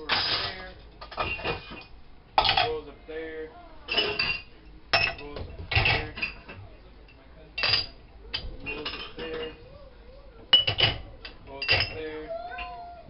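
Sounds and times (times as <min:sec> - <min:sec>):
dishes clinking against rack: 0:00.0 - 0:02.8, 0:03.9 - 0:06.7, 0:07.6 - 0:09.8, 0:10.5 - 0:12.8.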